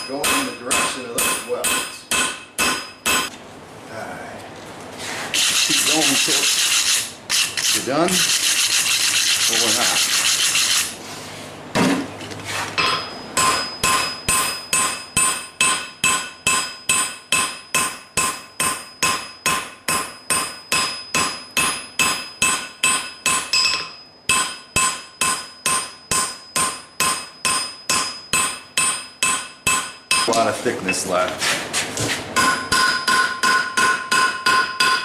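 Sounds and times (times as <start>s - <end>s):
hammer striking steel on anvil: 0.0s - 3.3s, 12.8s - 31.1s, 32.4s - 35.0s.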